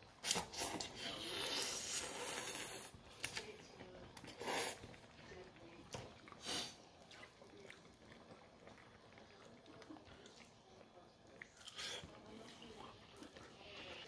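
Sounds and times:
noodles being slurped: 0.2s - 3.5s.

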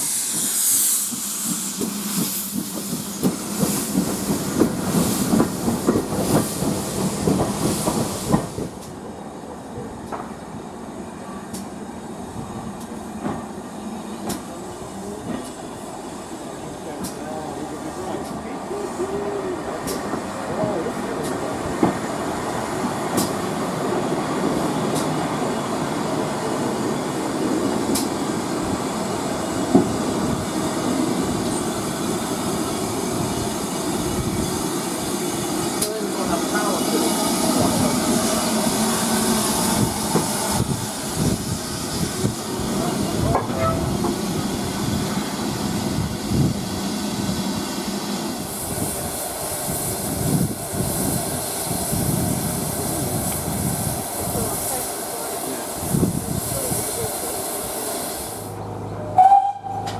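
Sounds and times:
high hiss: 0.0s - 8.8s, 43.9s - 58.6s
train rumbling on track: 0.0s - 59.9s.

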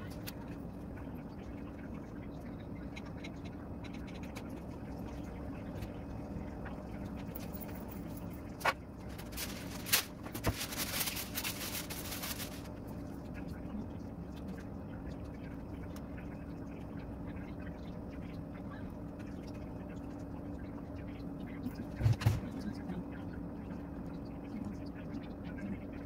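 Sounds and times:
steady low hum: 0.0s - 26.0s
scraping and rustling handling: 8.6s - 12.7s.

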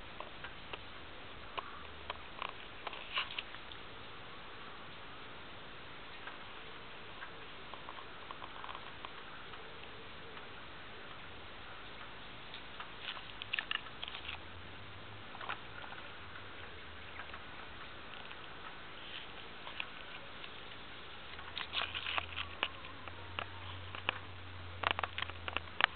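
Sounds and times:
steady hiss: 0.0s - 25.9s
leaves rustling: 2.2s - 3.9s, 12.2s - 25.9s.

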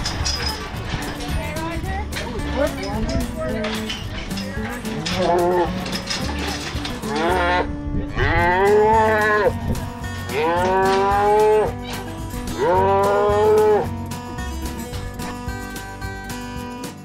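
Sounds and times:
faint background music: 0.0s - 17.0s
calves mooing: 5.0s - 5.9s, 7.0s - 9.6s, 10.2s - 13.9s.

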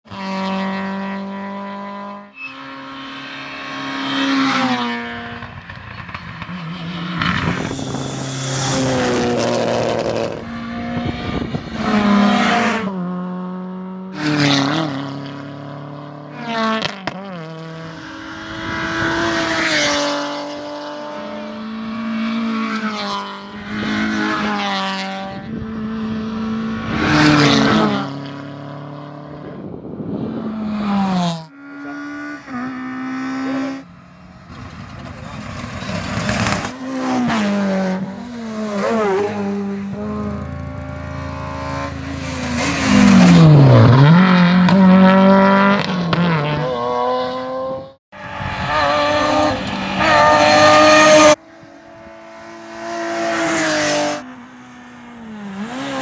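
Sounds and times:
rally cars passing at full throttle: 0.0s - 56.0s.

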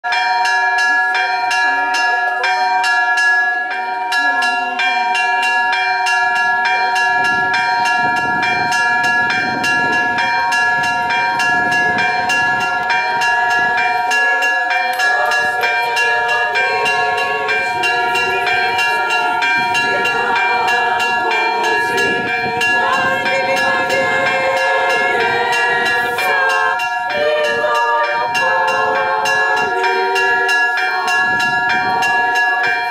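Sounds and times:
church bells pealing: 0.0s - 32.9s
crowd voices: 0.6s - 32.9s.

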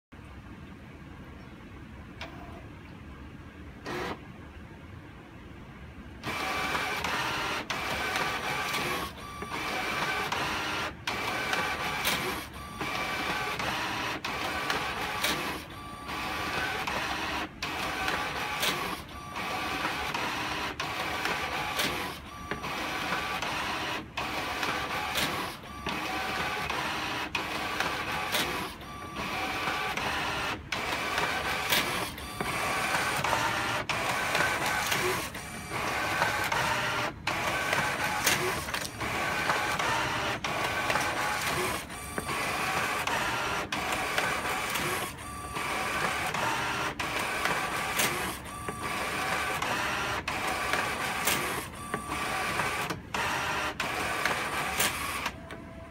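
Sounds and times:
printer paper feeding whir: 3.8s - 4.2s, 6.2s - 55.9s
printer sharp click: 24.3s - 28.8s, 30.8s - 53.1s, 53.7s - 55.6s.

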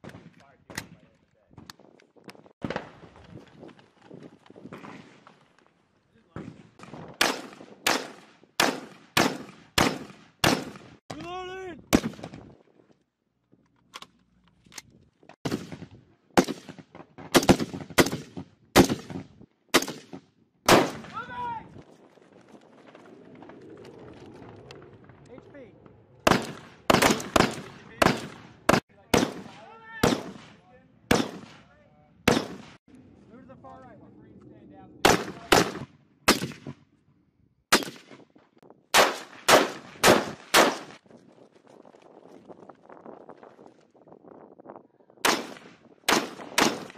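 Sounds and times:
rifle shots with echo: 6.8s - 11.0s, 15.4s - 21.2s, 26.2s - 32.8s, 35.0s - 36.8s, 37.7s - 38.2s, 38.9s - 41.0s, 45.2s - 46.9s.

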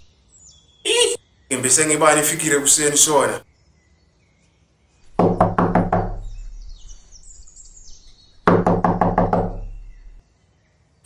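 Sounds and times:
knocking on wooden door: 5.2s - 6.6s, 8.5s - 10.2s.

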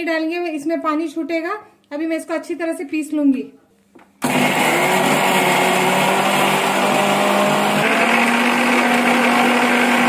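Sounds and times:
mixer grinder whirring: 4.2s - 10.0s.

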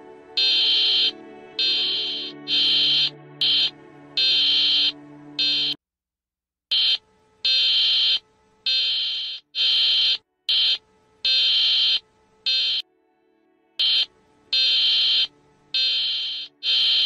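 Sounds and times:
low sustained tone: 0.0s - 5.8s
high-pitched electronic alarm buzzer: 0.4s - 5.8s, 6.7s - 12.8s, 13.8s - 17.0s.

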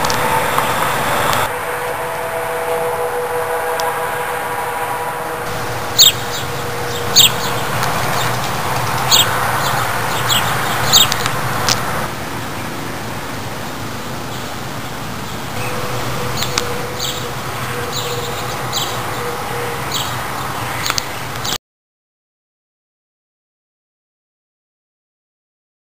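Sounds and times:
background hum: 0.0s - 12.6s
birds chirping: 5.0s - 21.6s.

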